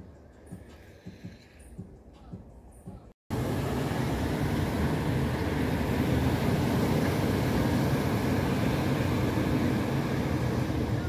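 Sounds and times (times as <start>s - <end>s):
wind: 0.0s - 11.0s
surf: 3.3s - 11.0s.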